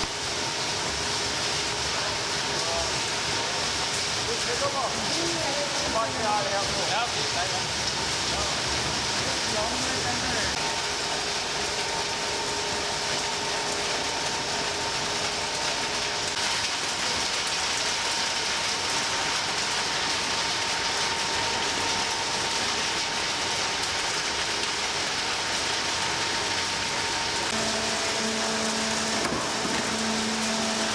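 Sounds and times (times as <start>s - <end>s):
shredding machinery running: 20.9s - 30.9s.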